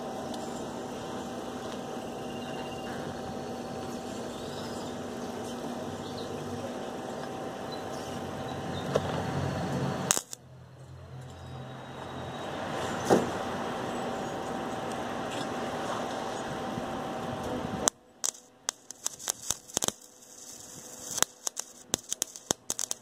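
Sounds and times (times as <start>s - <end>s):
welder arc hissing: 0.0s - 10.4s, 17.6s - 23.0s
welder click: 10.1s - 10.4s, 17.8s - 23.0s.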